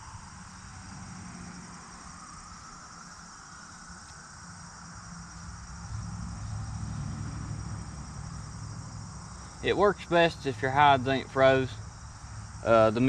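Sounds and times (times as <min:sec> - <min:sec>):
insects chirring: 0:00.0 - 0:13.0
low hum: 0:03.7 - 0:13.0.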